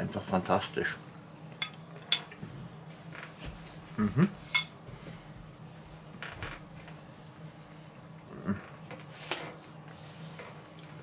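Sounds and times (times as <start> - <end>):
low vocal sound: 3.9 - 4.4, 8.3 - 8.8.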